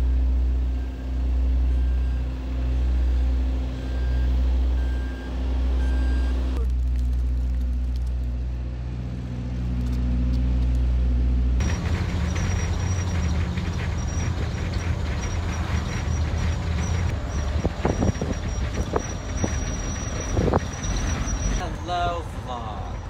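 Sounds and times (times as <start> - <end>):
bus engine rumble: 0.0 - 23.0
construction machinery engine drone: 0.0 - 23.0
knocks and rattles: 11.6 - 21.6.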